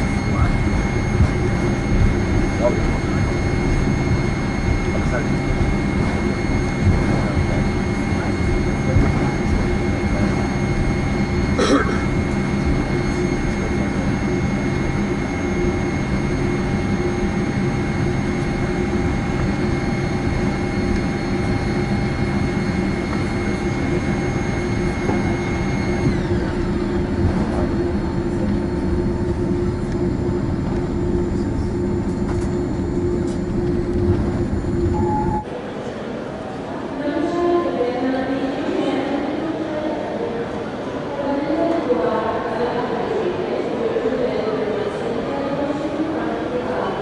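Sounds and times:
aircraft cabin rumble: 0.0 - 35.5
high whining tones: 0.0 - 35.6.

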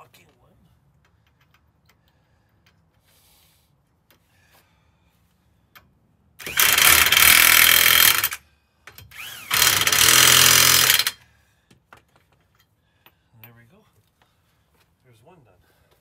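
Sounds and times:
impact wrench hammering: 6.4 - 11.2.

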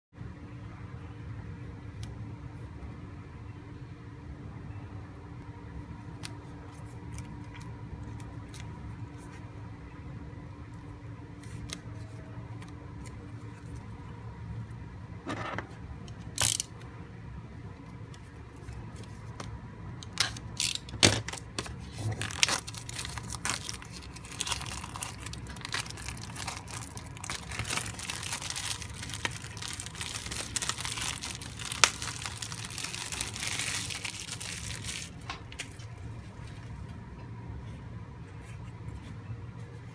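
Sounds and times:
low steady hum: 0.2 - 39.9
shrink-wrap being cut: 20.2 - 35.2
plastic wrap crinkling: 20.2 - 36.6.

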